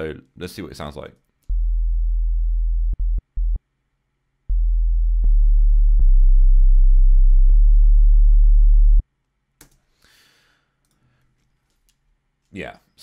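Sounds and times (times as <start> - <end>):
deep sub-bass synth tone: 1.5 - 3.6, 4.5 - 9.0.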